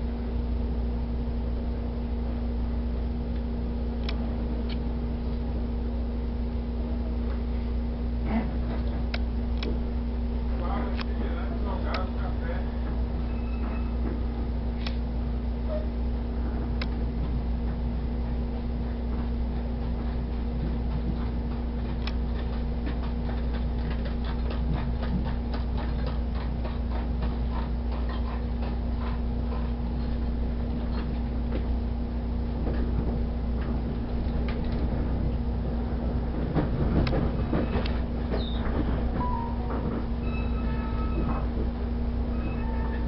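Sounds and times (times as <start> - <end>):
train car rumble: 0.0 - 43.0
train wheels clicking on track: 16.6 - 31.8, 32.5 - 43.0.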